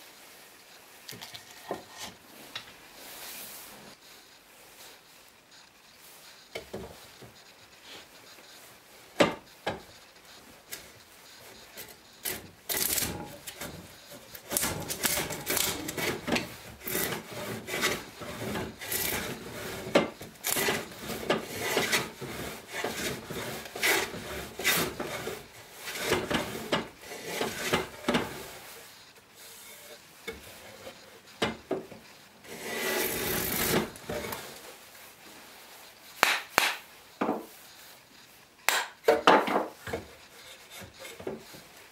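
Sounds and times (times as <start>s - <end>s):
plane shaving wood: 10.4s - 28.6s, 32.4s - 34.5s.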